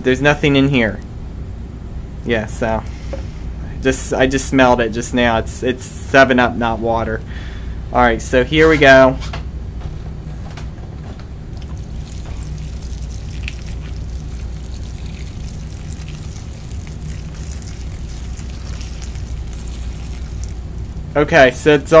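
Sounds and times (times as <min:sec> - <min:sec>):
low hum: 0:09.3 - 0:22.0
liquid pouring into plastic bag: 0:11.6 - 0:21.1.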